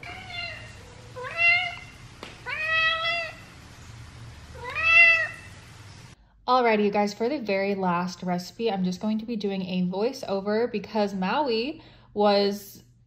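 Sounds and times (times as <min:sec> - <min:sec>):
cat meowing: 0:00.0 - 0:03.6, 0:04.5 - 0:05.6.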